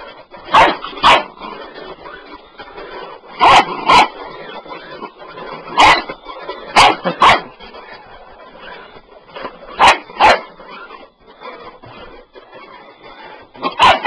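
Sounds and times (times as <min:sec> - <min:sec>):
puppy barking: 0:00.5 - 0:01.4, 0:03.4 - 0:04.5, 0:05.7 - 0:07.6, 0:09.7 - 0:10.5, 0:13.6 - 0:14.0.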